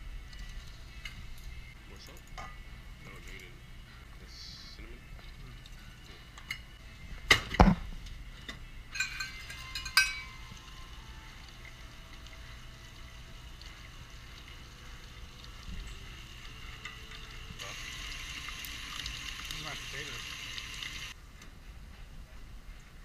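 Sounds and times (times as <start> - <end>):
metal clinks on mixing bowl: 9.0 - 10.4.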